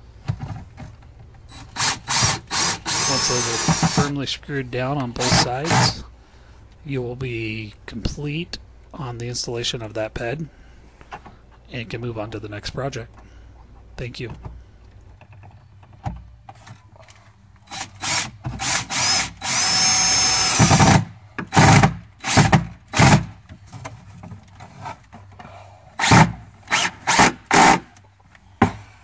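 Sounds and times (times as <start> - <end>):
cordless drill driving screws: 1.5 - 4.2, 5.2 - 6.0, 17.6 - 23.3, 26.0 - 27.8.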